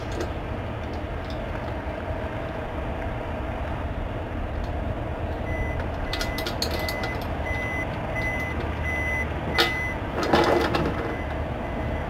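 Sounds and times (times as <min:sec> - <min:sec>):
low engine rumble: 0:00.0 - 0:12.0
vehicle reversing alarm beeping: 0:05.4 - 0:12.0.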